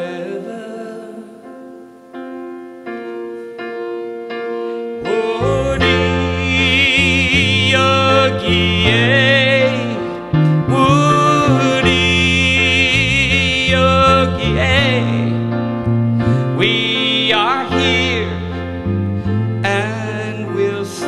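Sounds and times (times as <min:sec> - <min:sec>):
man singing wordless notes: 0:00.0 - 0:02.0, 0:05.0 - 0:21.0
grand piano: 0:00.0 - 0:21.0
electric bass: 0:05.1 - 0:21.0.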